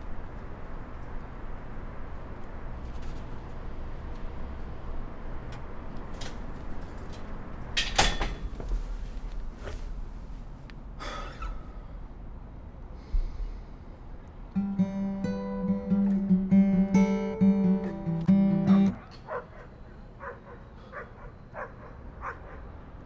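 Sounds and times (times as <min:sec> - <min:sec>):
acoustic guitar picking: 0:14.5 - 0:19.0.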